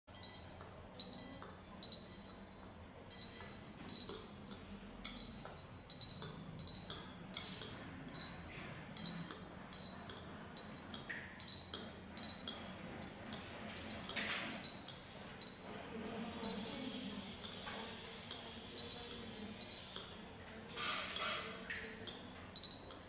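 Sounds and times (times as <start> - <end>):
chopsticks clinking on porcelain: 0.1 - 15.8, 17.4 - 23.0
brief scrape on plate: 20.8 - 21.6.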